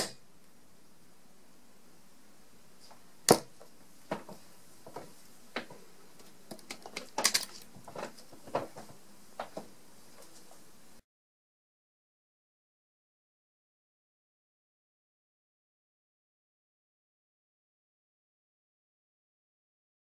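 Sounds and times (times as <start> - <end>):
dart hitting dartboard: 3.3 - 3.5.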